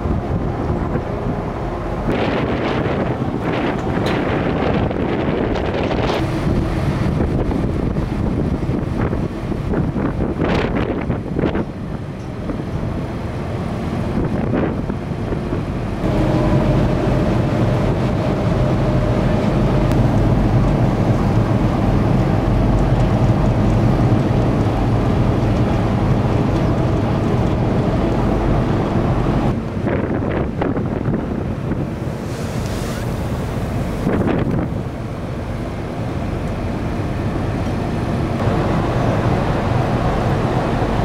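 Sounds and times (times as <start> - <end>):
water rushing past hull: 0.0 - 11.6, 15.7 - 41.0
ferry engine drone: 0.0 - 41.0
wind buffeting microphone: 0.0 - 41.0.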